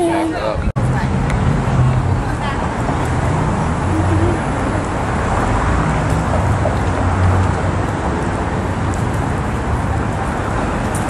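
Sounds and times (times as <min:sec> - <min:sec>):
city street rumble and hiss: 0:00.0 - 0:11.0.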